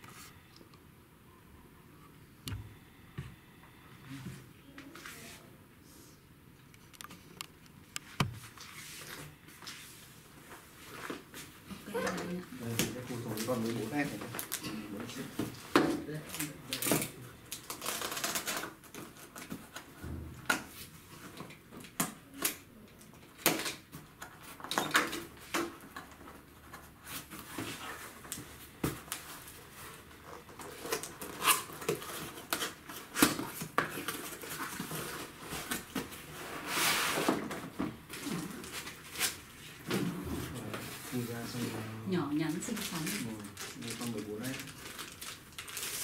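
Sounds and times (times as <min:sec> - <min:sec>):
packaging rustling: 0:12.9 - 0:19.9, 0:42.5 - 0:46.0.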